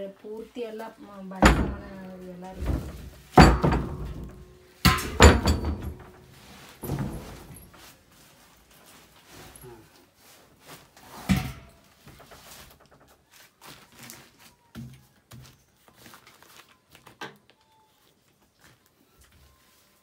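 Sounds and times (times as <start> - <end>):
knocks in storage chest: 2.6 - 6.2
plastic sheeting rustling: 6.0 - 14.7, 15.8 - 20.0.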